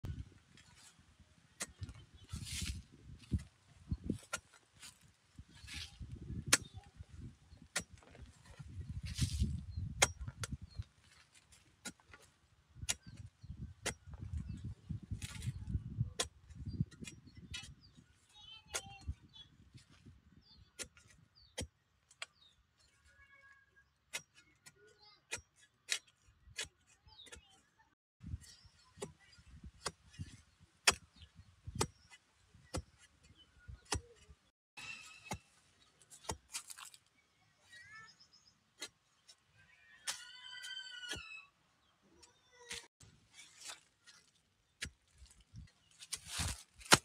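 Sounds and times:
digging bar striking stony soil: 1.5s - 17.9s, 20.7s - 22.5s, 24.1s - 27.5s, 28.3s - 37.1s, 38.4s - 39.4s, 42.6s - 47.0s.

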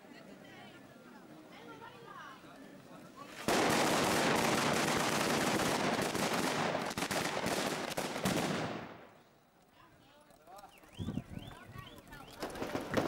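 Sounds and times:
firecrackers crackling: 3.2s - 13.0s.

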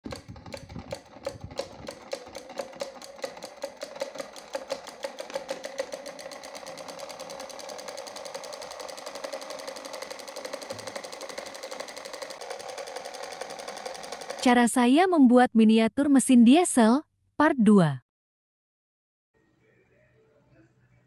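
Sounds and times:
model engine mechanical ticking: 0.0s - 14.6s.

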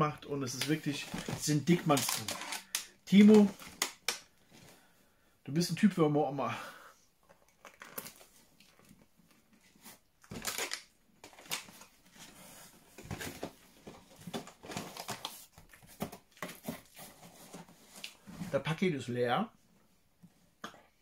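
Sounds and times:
paper and packaging rustling: 0.5s - 4.1s, 7.5s - 18.6s.

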